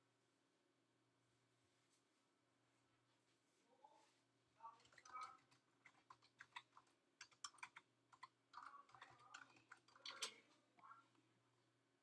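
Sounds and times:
typing on a keyboard: 4.8 - 10.9.

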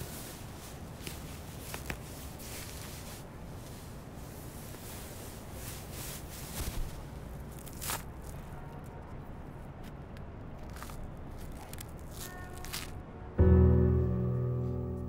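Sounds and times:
ribbons rustling and scratching: 0.0 - 9.0, 9.8 - 13.0
low steady hum: 13.0 - 15.0.

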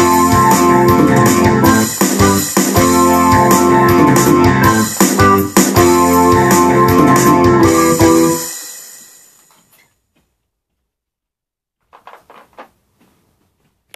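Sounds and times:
rock synthesizer music: 0.0 - 9.4
faint shuffles: 11.9 - 13.9.

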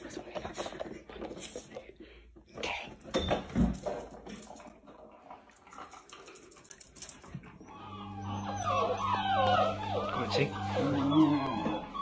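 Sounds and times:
puppies whining: 7.0 - 12.0.

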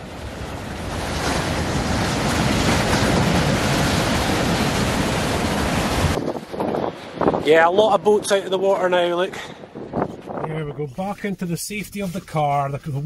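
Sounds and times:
surf washing over rocks: 0.0 - 9.2.

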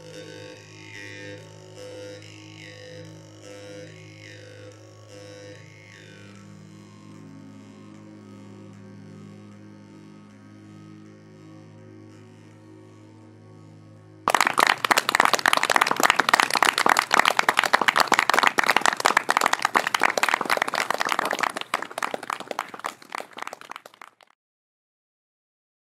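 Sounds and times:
audience applause: 14.3 - 24.3.

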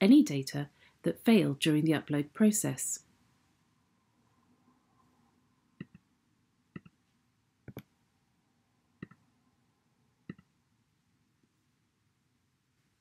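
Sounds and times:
faint room hiss: 0.0 - 13.0
computer mouse clicks: 5.8 - 6.0, 6.8 - 7.0, 7.7 - 7.9, 9.0 - 9.2, 10.3 - 10.5.

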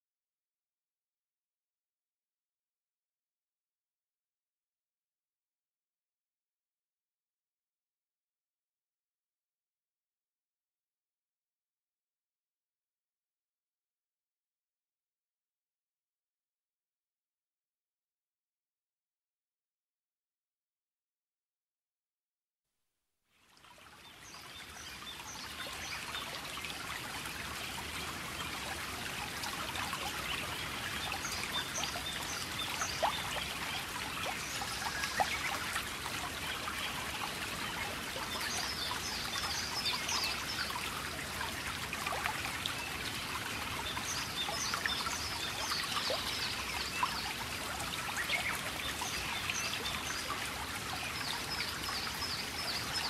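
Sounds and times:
stream trickling: 23.3 - 53.0.

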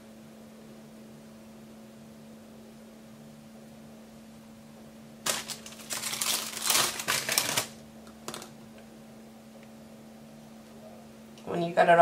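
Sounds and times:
plastic sleeve crinkling: 5.2 - 8.5.

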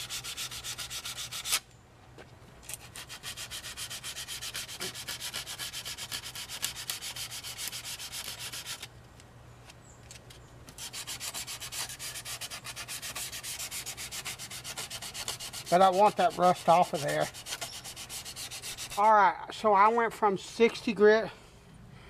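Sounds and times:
sandpaper rubbing on steel: 0.0 - 1.6, 2.7 - 8.9, 10.7 - 19.2.

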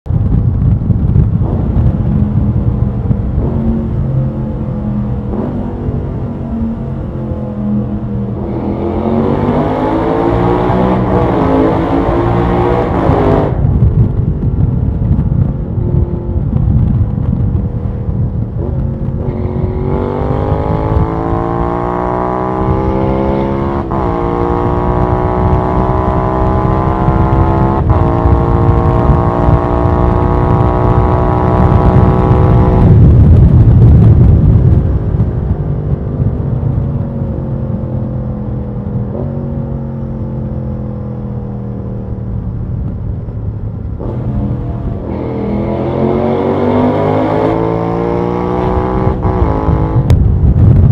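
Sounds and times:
low wind rush: 0.0 - 50.9
engine revving through gears: 3.4 - 13.6, 18.6 - 33.0, 44.0 - 50.1.

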